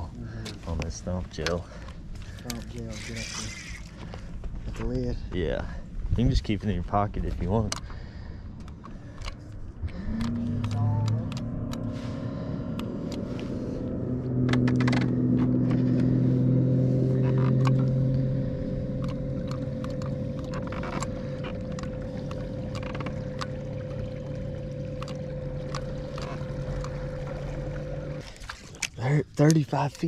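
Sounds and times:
electric trolling motor humming: 1.9s - 4.4s, 7.5s - 29.0s.

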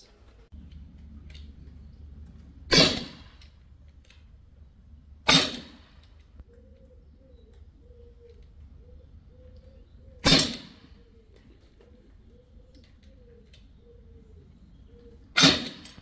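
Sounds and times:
air rifle shots: 2.7s - 3.6s, 5.2s - 6.2s, 10.2s - 11.0s, 15.3s - 16.0s.

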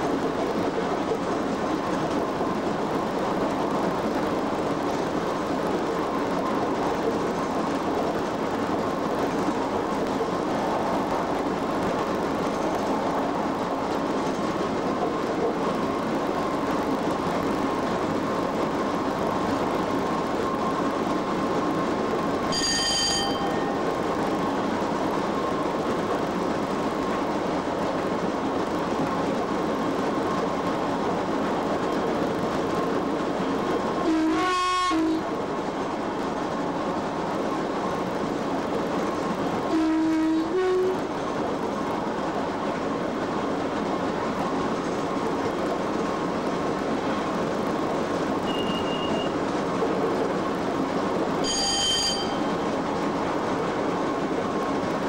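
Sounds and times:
train wheels rumbling on rail: 0.0s - 55.0s
brief high ringing tone: 22.5s - 23.8s, 48.5s - 49.3s, 51.4s - 52.5s.

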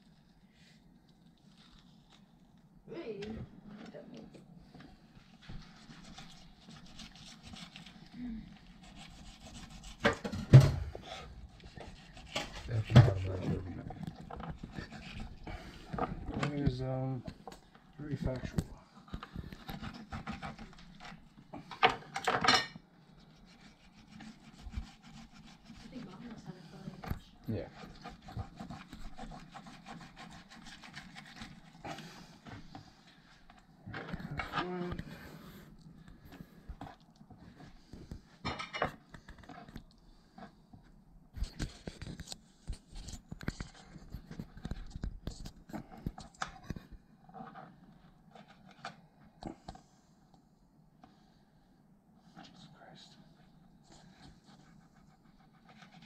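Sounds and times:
knife cutting and scraping fish: 4.8s - 16.6s, 19.0s - 40.6s, 54.0s - 56.0s.

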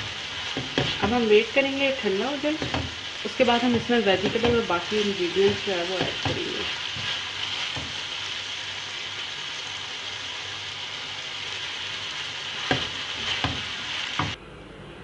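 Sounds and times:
spatula knocking on pan: 0.0s - 1.2s, 2.5s - 8.0s, 12.6s - 14.4s
chicken sizzling in oil: 0.0s - 14.4s.

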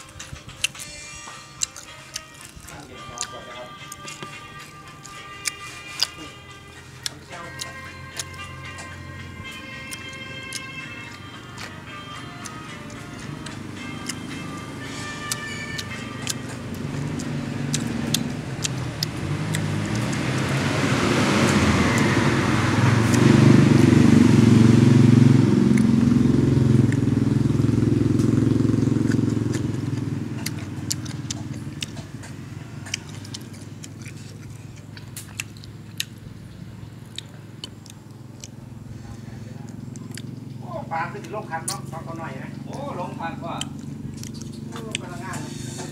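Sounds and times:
clicks and smacks of eating: 0.0s - 14.5s, 15.1s - 20.5s, 28.2s - 36.3s, 37.0s - 38.7s, 39.7s - 40.6s, 41.2s - 42.0s, 43.6s - 45.9s
vehicle engine passing: 0.0s - 45.9s.

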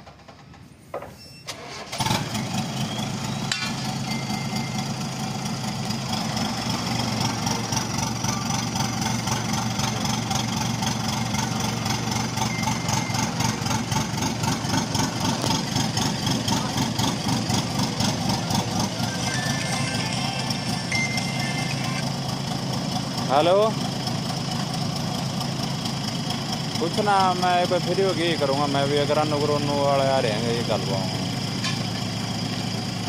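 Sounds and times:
heavy machinery running: 1.5s - 33.0s
machinery high whine: 9.8s - 22.4s.

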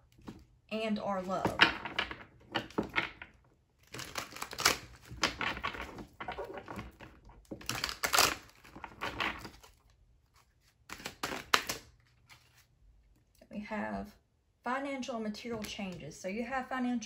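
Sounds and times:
cards being shuffled: 3.8s - 12.7s.

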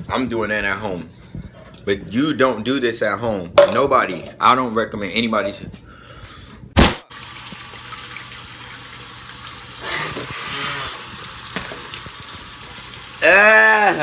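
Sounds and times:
kitchen tap running: 7.1s - 14.0s.

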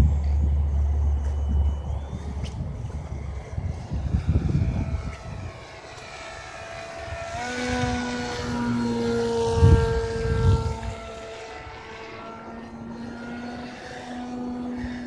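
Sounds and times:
electric motor whine: 0.0s - 15.0s.

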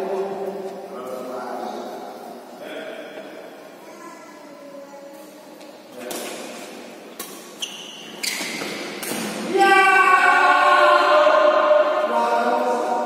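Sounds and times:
racket hitting shuttlecock: 8.3s - 9.5s
loud voice chanting: 9.5s - 13.0s.

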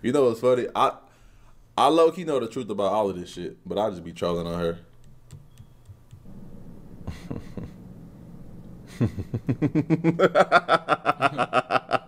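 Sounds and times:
man laughing hard: 7.1s - 7.8s, 8.9s - 12.0s.

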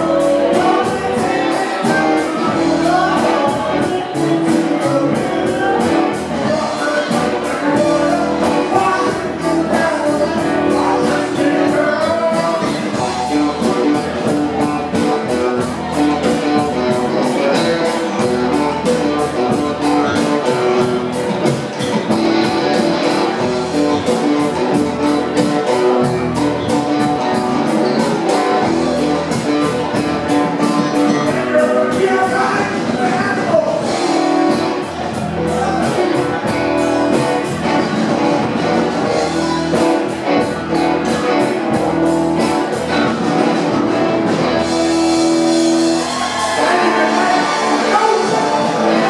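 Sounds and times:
man singing into microphone: 0.0s - 14.2s, 31.0s - 34.2s
live rock band playing: 0.0s - 49.0s.

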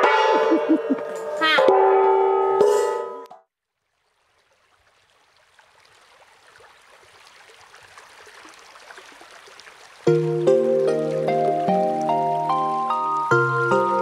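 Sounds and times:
water stream flowing: 3.6s - 14.0s.

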